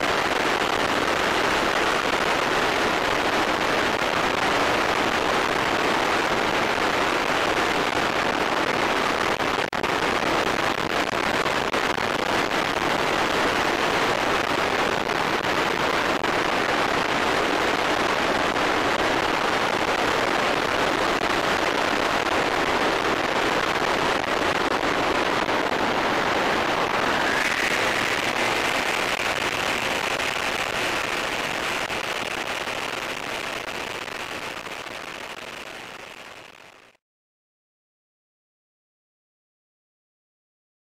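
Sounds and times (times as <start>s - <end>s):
aircraft engine noise: 21.7s - 34.9s
airflow rushing: 25.8s - 31.6s
steady high tone: 26.9s - 30.0s.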